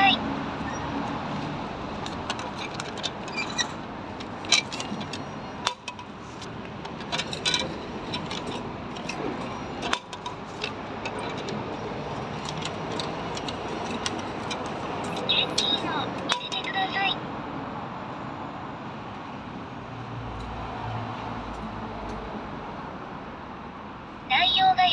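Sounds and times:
steady background noise: 0.0s - 24.9s.

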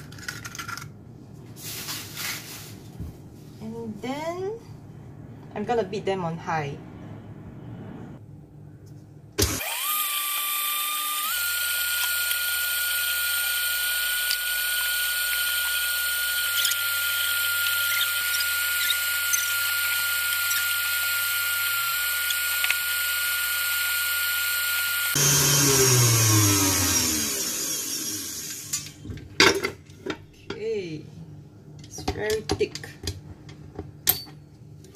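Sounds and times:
stand mixer motor whining: 9.4s - 28.7s.

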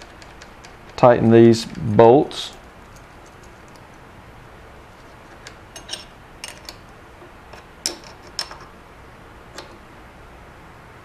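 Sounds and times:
metallic clicks of nuts and washers: 5.2s - 6.9s, 7.5s - 8.8s.

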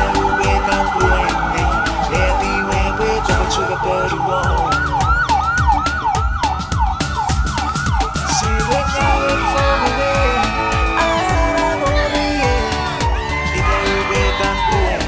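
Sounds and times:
electronic siren sweeps: 0.0s - 11.8s
music with heavy bass beat: 0.0s - 15.0s.

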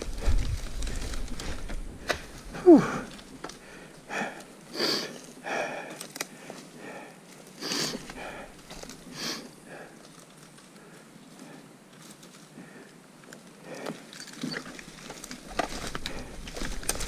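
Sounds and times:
person breathing hard: 0.1s - 10.0s, 13.6s - 14.1s.

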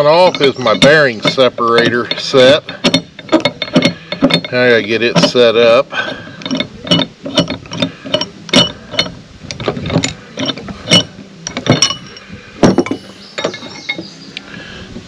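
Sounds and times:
metal parts clinking together: 0.0s - 5.6s, 6.3s - 14.2s.

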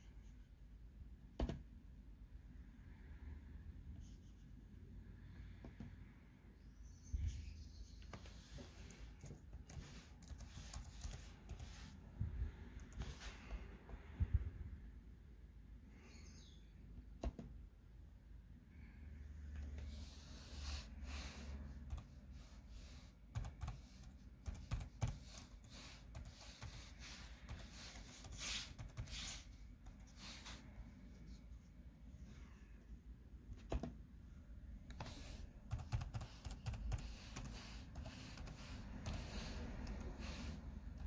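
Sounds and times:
computer keyboard typing: 8.9s - 11.9s, 21.8s - 22.2s, 23.3s - 30.1s, 34.9s - 41.0s.

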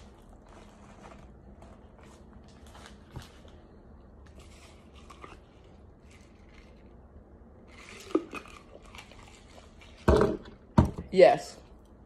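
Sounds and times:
crunchy food being chewed: 4.3s - 10.0s.

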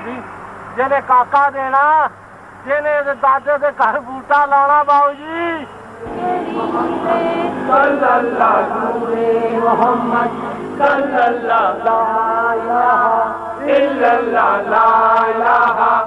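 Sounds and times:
group chanting folk song: 5.9s - 16.0s.

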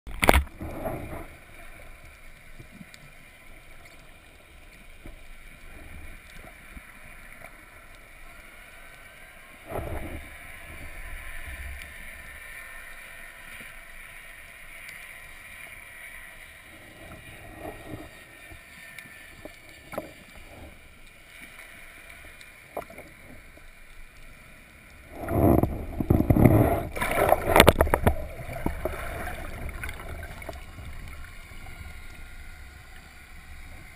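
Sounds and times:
underwater water noise: 0.1s - 33.9s.

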